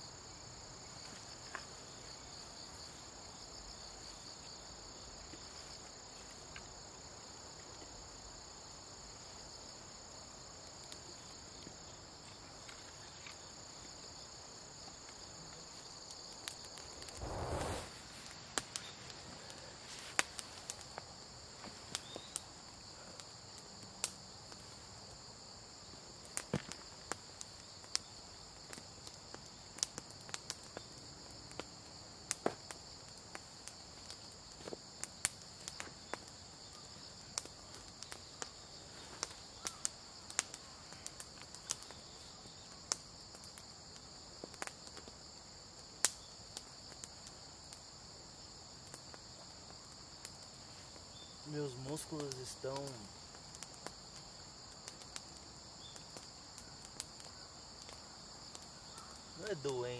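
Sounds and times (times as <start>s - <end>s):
insects trilling: 0.0s - 59.9s
rustle: 0.0s - 59.9s.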